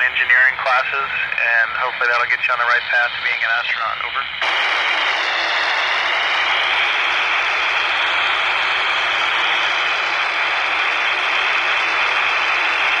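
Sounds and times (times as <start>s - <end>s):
radio static hissing: 0.0s - 13.0s.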